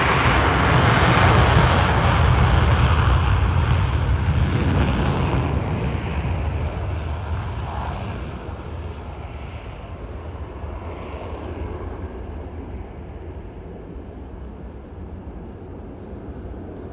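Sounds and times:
jet engines at takeoff power: 0:00.0 - 0:16.9.

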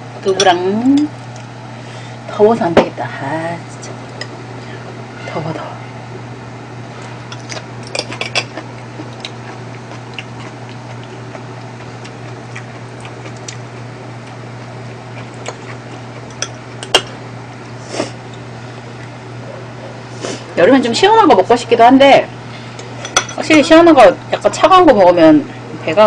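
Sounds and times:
steady low hum: 0:00.0 - 0:26.0
cutlery clinking on ceramic bowls: 0:23.0 - 0:23.4.

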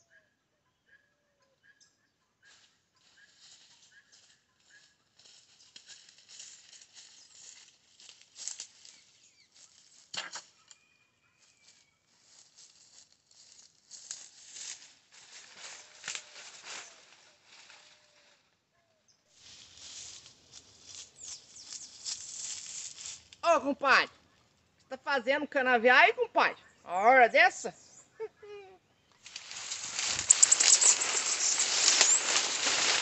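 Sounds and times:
dry leaves crackling and rustling: 0:02.5 - 0:10.1, 0:10.8 - 0:18.4, 0:19.3 - 0:23.4, 0:29.2 - 0:33.0.

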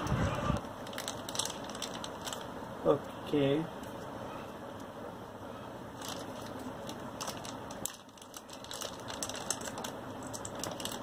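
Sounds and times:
plastic bag crinkling: 0:00.7 - 0:02.6, 0:05.9 - 0:11.0.

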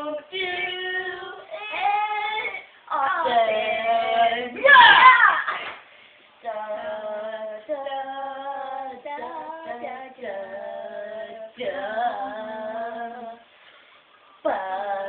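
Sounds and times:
girl singing long notes: 0:00.0 - 0:05.5.

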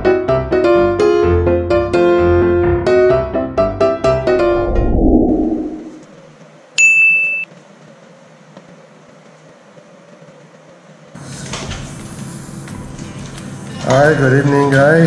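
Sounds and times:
piano music: 0:00.6 - 0:06.0
steady rushing noise: 0:04.4 - 0:06.4.

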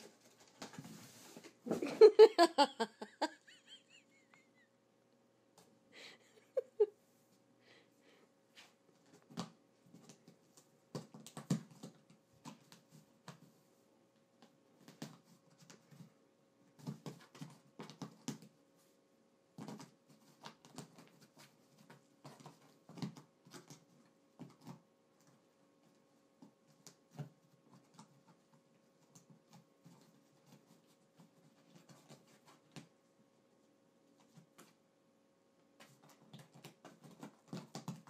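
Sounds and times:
faint steady hum: 0:00.0 - 0:38.0
cats scratching a cardboard box: 0:08.6 - 0:13.7, 0:14.8 - 0:18.8, 0:19.5 - 0:33.0, 0:35.8 - 0:38.0.

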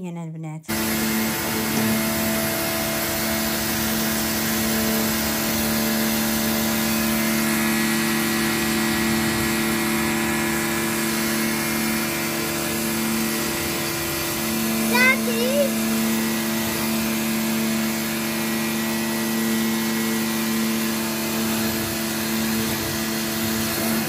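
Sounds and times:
pressure washer motor humming: 0:00.7 - 0:24.0
water jet hissing: 0:00.7 - 0:24.0.

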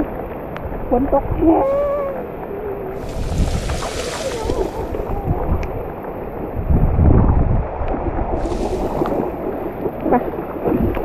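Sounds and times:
wind rumble on microphone: 0:00.0 - 0:11.0
water sloshing and splashing: 0:01.6 - 0:06.6, 0:08.3 - 0:11.0.

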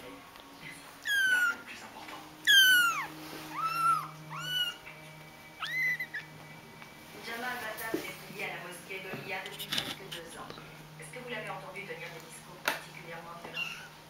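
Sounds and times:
kittens mewing: 0:01.0 - 0:01.6, 0:02.4 - 0:05.0, 0:05.6 - 0:06.3.

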